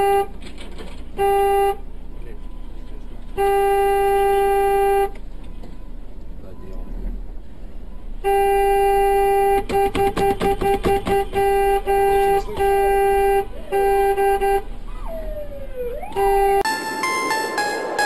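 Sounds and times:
car horn honking: 0.0s - 0.4s, 1.1s - 1.9s, 3.4s - 5.2s, 8.2s - 14.7s, 16.0s - 18.0s
faint ambulance siren wailing: 2.2s - 9.4s, 11.6s - 18.0s.

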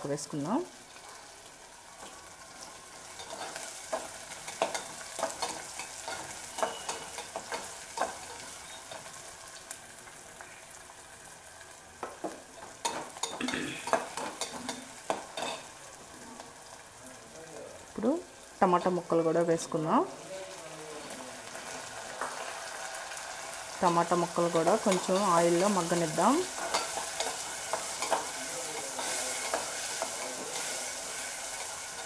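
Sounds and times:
vegetables sizzling in hot oil: 0.0s - 32.0s
metal spatula scraping pot: 4.5s - 8.8s.

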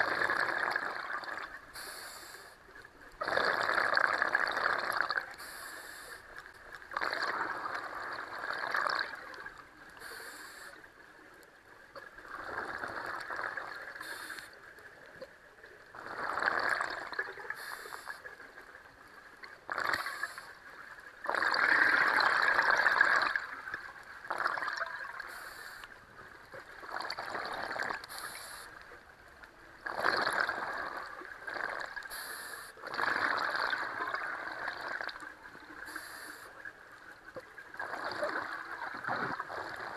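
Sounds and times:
exhaled bubbles gurgling: 0.0s - 11.0s, 11.8s - 39.9s
regulator inhale hisses: 1.7s - 2.6s, 5.4s - 6.3s, 10.0s - 10.8s, 14.0s - 14.6s, 17.5s - 18.3s, 19.9s - 20.6s, 25.3s - 26.0s, 28.1s - 28.8s, 32.1s - 32.8s, 35.8s - 36.6s.

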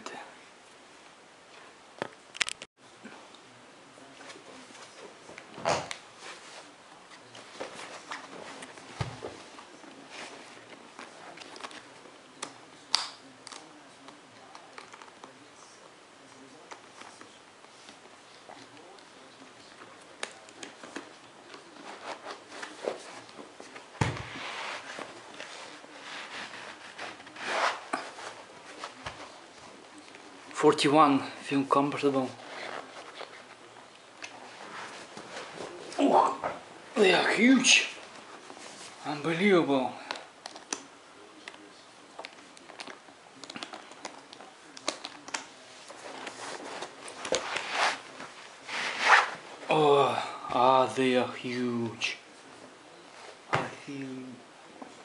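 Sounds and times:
rubbing and rustling: 6.0s - 12.1s, 16.7s - 30.7s, 31.7s - 39.4s, 42.3s - 49.7s
plastic boot rubbing and scraping: 47.3s - 49.4s.

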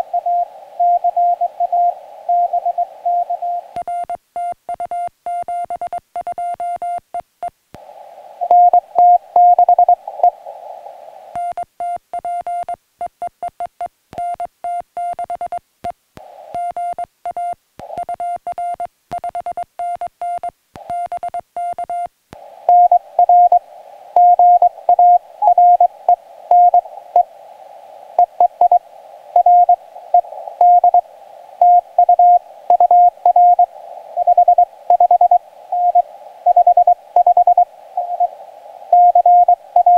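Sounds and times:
radio receiver hiss: 0.0s - 3.9s, 7.7s - 12.0s, 15.8s - 19.3s, 22.3s - 39.9s
morse code tone: 22.7s - 23.6s, 24.2s - 27.3s, 29.4s - 31.0s, 31.6s - 38.3s, 38.9s - 39.9s.

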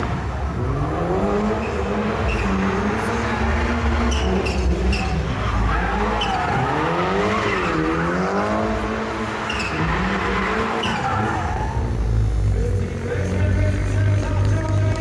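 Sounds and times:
car engine revving: 0.0s - 15.0s
tyres squealing: 1.6s - 13.7s.

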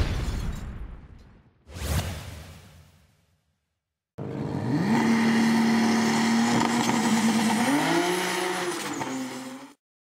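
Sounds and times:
high turbo whine: 4.2s - 9.6s
car engine revving: 4.2s - 9.8s.

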